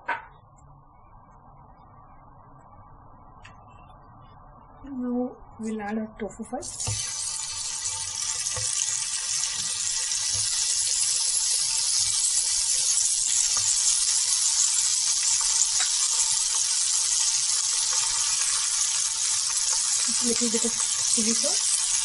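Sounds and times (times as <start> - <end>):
tofu sizzling in hot oil: 6.6 - 22.0.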